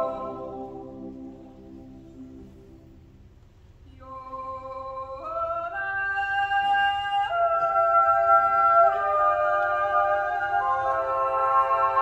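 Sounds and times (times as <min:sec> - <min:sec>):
mixed choir yodelling: 0:00.0 - 0:01.7, 0:04.9 - 0:12.0.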